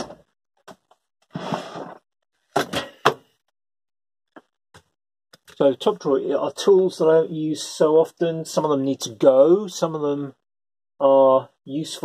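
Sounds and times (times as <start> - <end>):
wooden drawer scraping on runners: 1.3 - 2.0.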